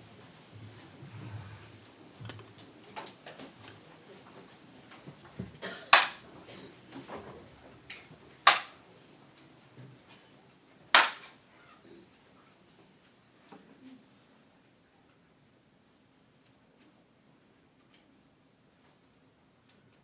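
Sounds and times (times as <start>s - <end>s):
bamboo clapper claps: 5.9s - 6.2s, 8.4s - 8.8s, 10.9s - 11.3s.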